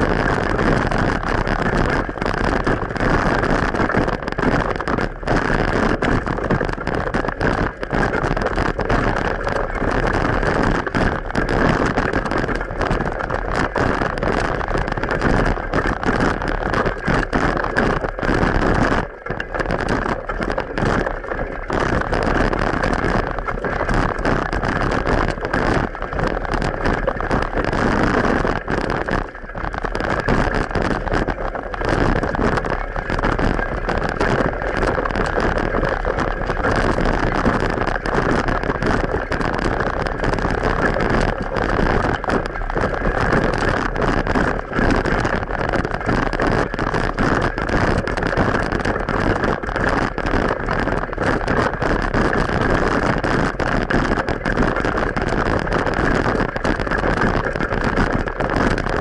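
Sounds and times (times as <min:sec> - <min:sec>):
bicycle road noise: 0:00.0 - 0:14.6.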